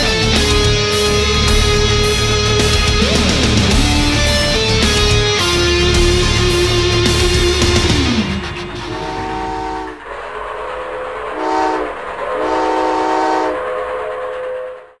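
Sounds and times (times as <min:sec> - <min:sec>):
train running noise: 0:00.0 - 0:15.0
train whistle chord blasts: 0:08.6 - 0:10.0, 0:11.3 - 0:13.7.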